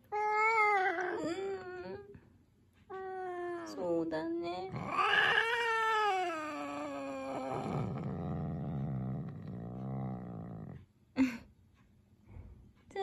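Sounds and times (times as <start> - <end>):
cat moaning: 0.1 - 2.1, 4.7 - 10.8
cat meowing: 4.7 - 8.0.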